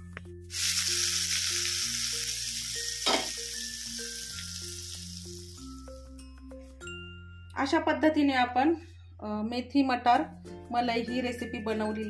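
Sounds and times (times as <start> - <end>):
hot oil sizzling on curry: 0.5 - 6.2.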